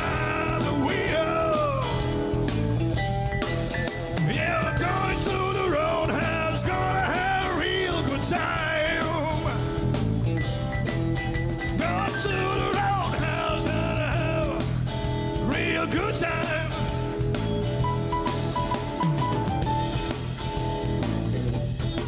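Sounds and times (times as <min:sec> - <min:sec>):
man singing: 0:00.0 - 0:02.2, 0:04.2 - 0:09.8, 0:11.8 - 0:17.0
bass guitar: 0:00.0 - 0:22.0
electric guitar: 0:00.0 - 0:22.0
keyboard: 0:00.0 - 0:22.0.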